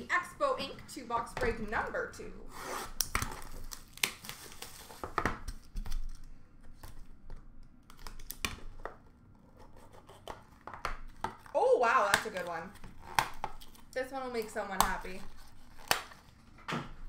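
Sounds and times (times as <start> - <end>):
plastic wrap crinkling and tearing: 2.9 - 7.1, 7.8 - 9.4, 10.0 - 16.5.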